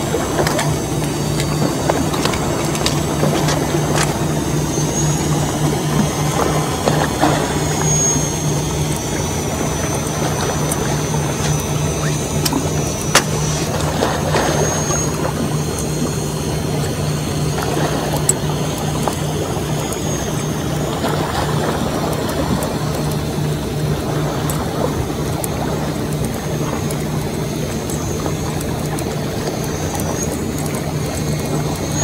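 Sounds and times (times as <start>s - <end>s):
high wavering whine: 0.0s - 32.0s
low motor hum: 0.0s - 32.0s
noisy wash: 0.0s - 32.0s
sharp clicks: 0.2s - 20.6s.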